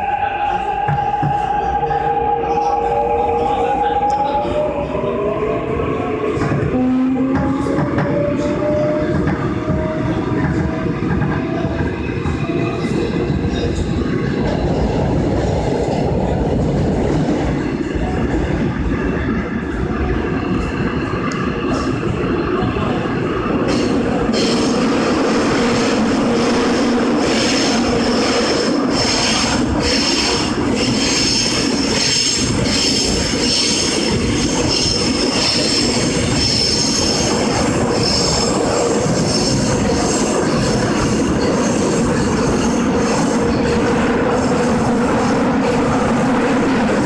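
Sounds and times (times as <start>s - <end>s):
train running rumble: 0.0s - 47.0s
train wheels squealing on rails: 23.6s - 26.6s, 27.2s - 45.3s.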